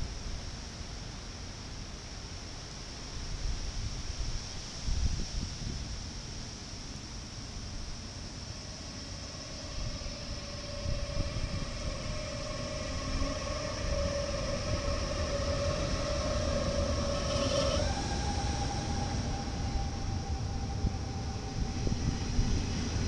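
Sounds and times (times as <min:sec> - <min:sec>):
electric train drive whine: 0:03.2 - 0:23.0
wheels rumbling on rails: 0:07.5 - 0:23.0.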